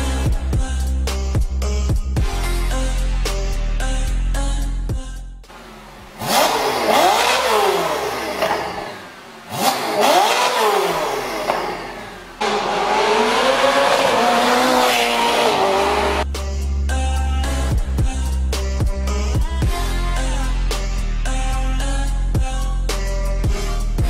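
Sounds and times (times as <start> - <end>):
background music: 0.0 - 5.5, 14.2 - 24.0
sports car engine revving: 5.5 - 16.4.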